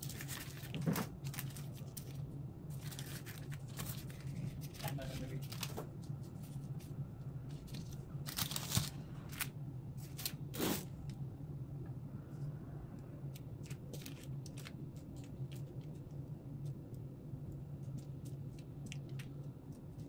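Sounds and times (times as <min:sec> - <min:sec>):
baking parchment crinkling: 0:00.0 - 0:10.9, 0:13.3 - 0:16.8
steady low hum: 0:00.0 - 0:20.0.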